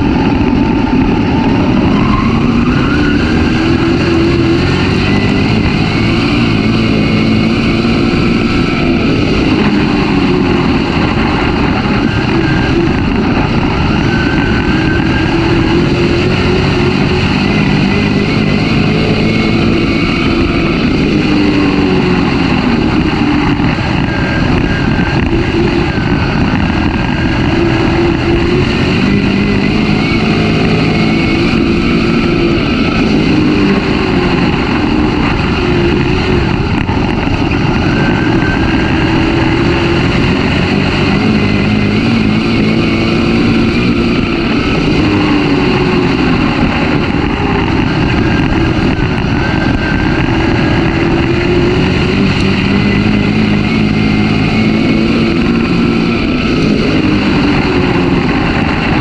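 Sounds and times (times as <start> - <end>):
race car engine running hard: 0.0 - 59.0
wind and track noise: 0.0 - 59.0.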